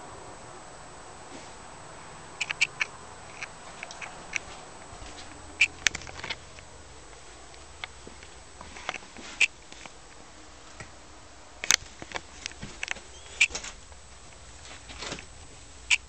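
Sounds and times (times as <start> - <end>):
faint steady hiss: 0.0 - 16.0
shoes squeaking on floor: 12.6 - 13.7.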